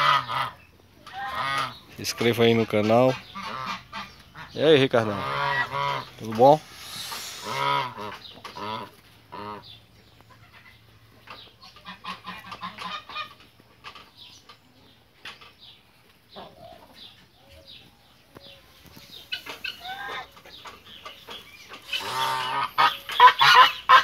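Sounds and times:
geese honking: 0.0s - 10.8s, 11.6s - 13.4s, 19.2s - 24.0s
geese clucking: 0.0s - 14.1s, 18.7s - 24.0s.

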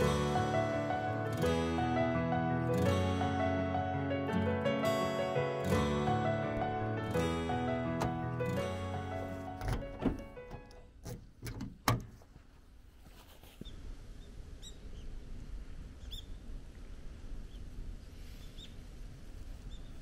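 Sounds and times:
car door shutting: 8.0s - 8.4s, 9.2s - 12.2s
bird chirps: 16.0s - 16.4s.

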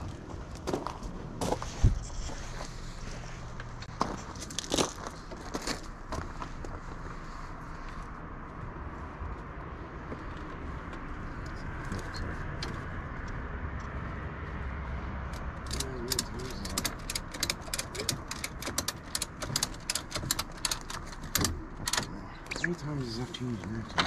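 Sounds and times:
ratchet strap clicking: 15.6s - 22.0s.

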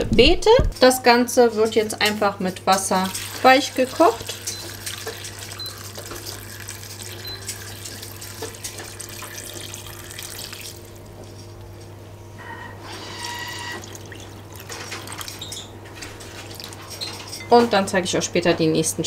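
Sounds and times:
water pouring onto vegetables: 3.0s - 11.1s, 13.8s - 15.4s.

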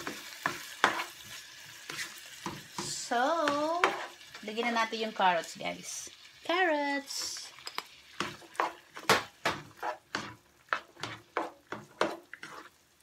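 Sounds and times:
spatula scraping a frying pan: 0.0s - 4.4s, 8.0s - 13.0s
carrots sizzling in a pan: 0.0s - 13.0s.

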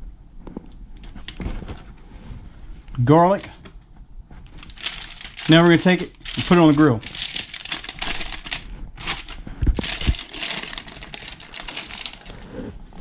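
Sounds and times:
aluminium foil crinkling: 4.4s - 12.5s.

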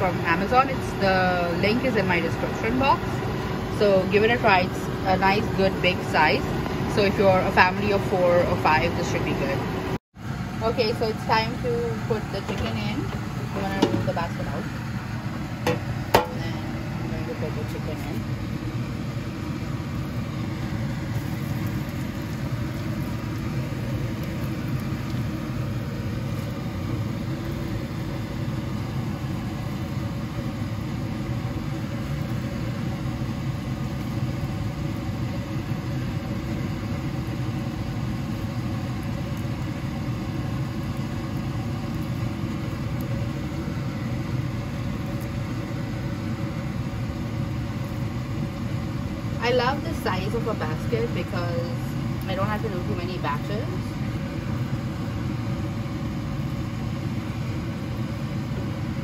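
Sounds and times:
fan motor whirring hum: 0.0s - 59.0s.

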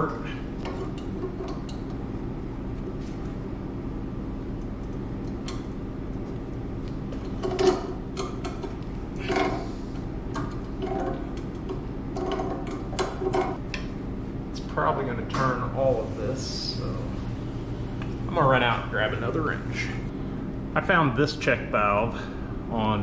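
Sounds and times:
steady low hum: 0.0s - 23.0s
metal knocks and scrapes: 7.1s - 13.6s.

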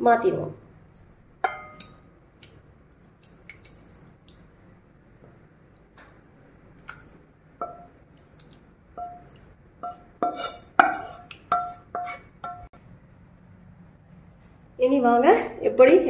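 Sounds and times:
spatula clinking against glass bowl: 1.0s - 2.0s, 9.0s - 12.7s.

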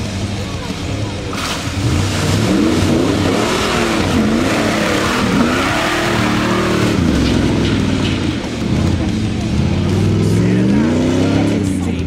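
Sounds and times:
off-road vehicle engine revving: 0.0s - 12.0s.

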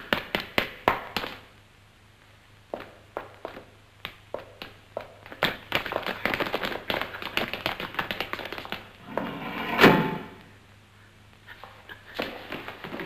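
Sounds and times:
loud thump: 9.2s - 10.4s.

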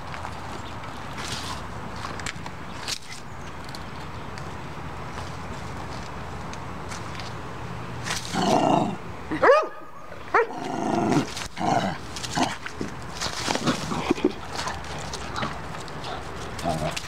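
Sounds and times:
dog growling: 8.3s - 9.0s, 10.5s - 12.6s
dog barking: 9.4s - 10.5s.

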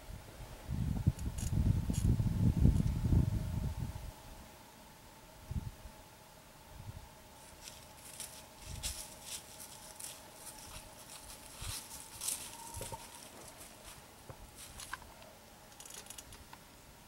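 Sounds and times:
footsteps crunching dry leaves: 7.4s - 14.0s, 14.6s - 15.0s.

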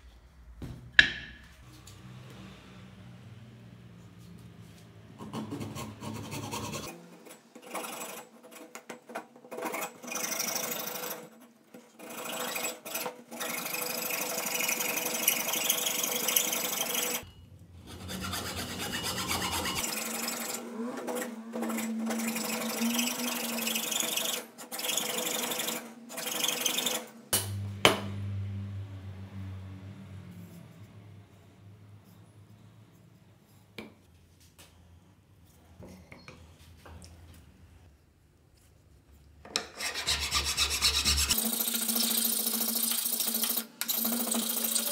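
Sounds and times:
sharp knock: 0.6s - 1.6s
hacksaw rasping through wood: 12.0s - 17.2s, 17.8s - 27.0s, 39.6s - 42.2s.

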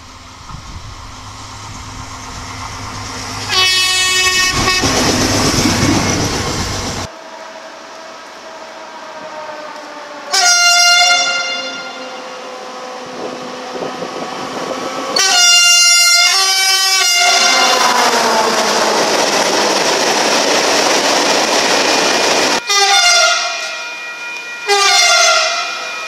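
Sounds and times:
freight train passing: 0.0s - 26.0s
train horn blasts: 3.4s - 5.0s, 8.7s - 18.1s, 22.6s - 26.0s.

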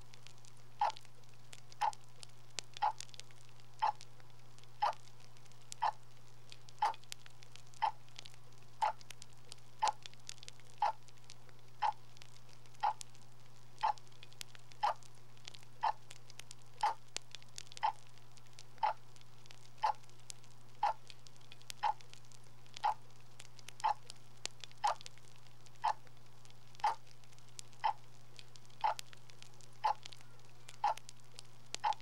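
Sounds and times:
low steady hum: 0.0s - 32.0s
clock ticking: 0.8s - 1.0s, 1.8s - 2.0s, 2.8s - 3.0s, 3.8s - 4.0s, 4.8s - 5.0s, 5.8s - 6.0s, 9.8s - 10.0s, 10.8s - 11.0s, 11.8s - 12.0s, 12.8s - 13.0s, 13.8s - 14.0s, 14.8s - 15.0s, 17.8s - 18.0s, 18.8s - 19.0s, 21.8s - 22.0s, 22.8s - 23.0s, 23.8s - 24.0s, 24.8s - 25.0s, 26.8s - 27.0s, 28.8s - 29.0s, 29.8s - 30.1s, 30.8s - 31.1s, 31.8s - 32.0s.

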